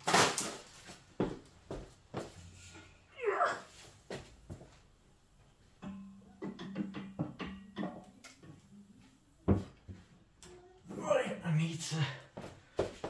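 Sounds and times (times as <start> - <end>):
metal radiator clicks and knocks: 5.8 - 8.1.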